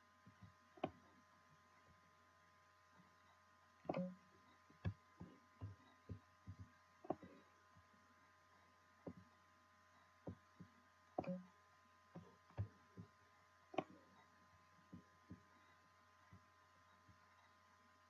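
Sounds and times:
faint steady hum: 0.0 - 18.0
soft taps and knocks: 4.7 - 7.9, 9.0 - 9.3, 10.2 - 11.4, 12.1 - 13.2, 14.8 - 15.5.

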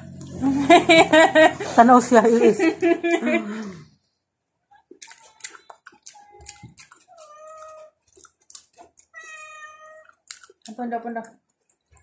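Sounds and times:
cat meowing: 6.2 - 8.0, 9.1 - 10.2.

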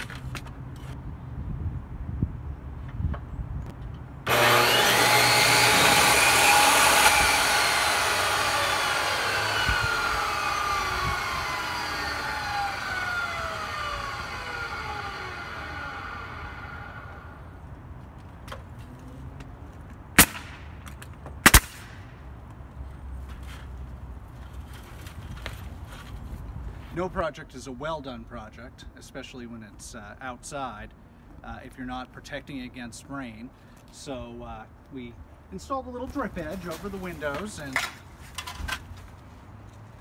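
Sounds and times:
pneumatic nail gun firing: 4.3 - 17.3, 20.2 - 20.6, 21.4 - 22.0
power saw cutting wood: 4.3 - 17.5
saw blade winding down: 4.3 - 17.5.

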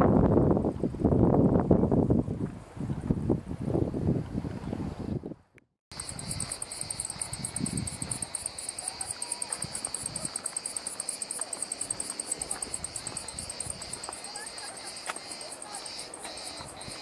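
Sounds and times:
cicadas shrilling: 5.9 - 17.0.

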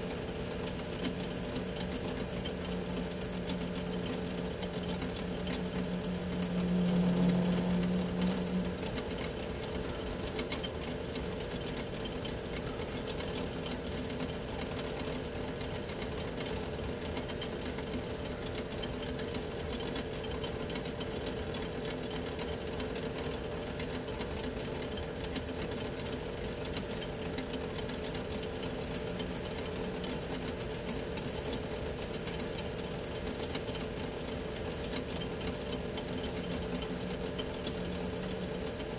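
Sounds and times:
metal lathe running: 0.0 - 21.5, 22.1 - 38.9
humming tone: 2.6 - 11.2.

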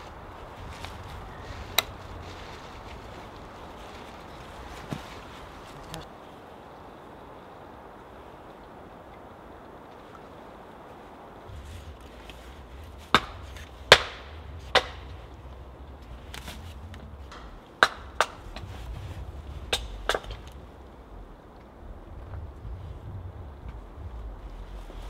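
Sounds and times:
wood knocking on wood: 13.0 - 18.7, 19.7 - 20.6.

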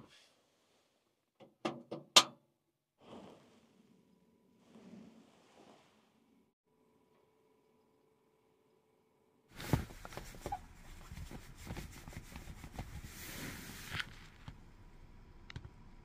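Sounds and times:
car engine rumble: 9.6 - 16.0.

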